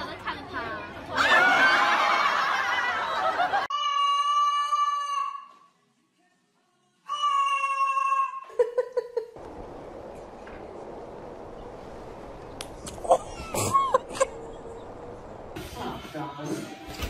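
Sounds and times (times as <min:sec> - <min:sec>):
cockatoo screaming: 0:03.7 - 0:05.5, 0:07.1 - 0:08.5
room noise hiss: 0:09.4 - 0:17.0.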